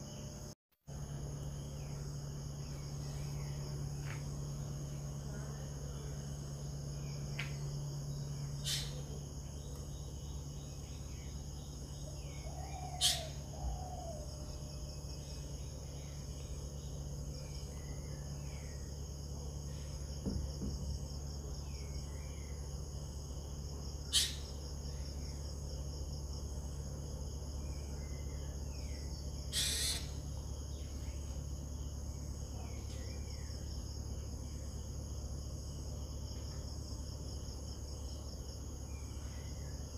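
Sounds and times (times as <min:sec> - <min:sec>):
crickets chirring: 0:00.0 - 0:39.9
low steady hum: 0:00.0 - 0:39.9
faint bird chirps: 0:07.0 - 0:19.0, 0:24.0 - 0:25.1, 0:27.6 - 0:31.4.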